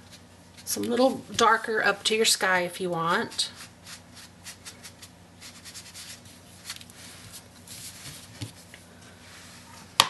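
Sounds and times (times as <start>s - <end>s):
sponge dabbing on paper: 3.2s - 8.6s.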